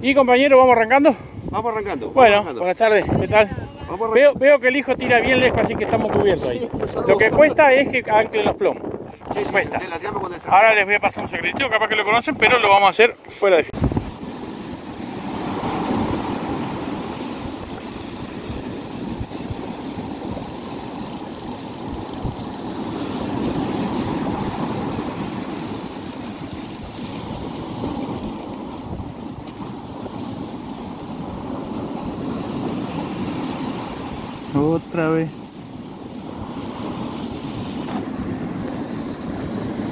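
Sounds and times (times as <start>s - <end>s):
wind buffeting microphone: 0.0s - 13.0s, 13.7s - 39.9s
sea surf breaking on beach: 13.6s - 39.9s.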